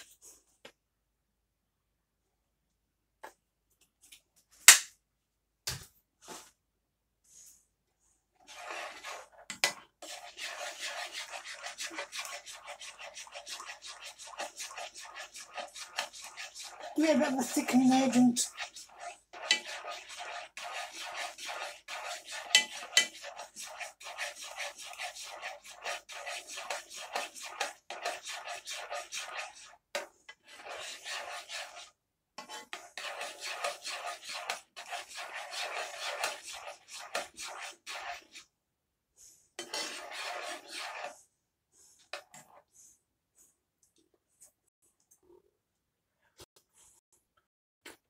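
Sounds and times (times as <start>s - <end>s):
fork scraping a saucepan: 8.4s - 38.5s, 39.6s - 42.7s.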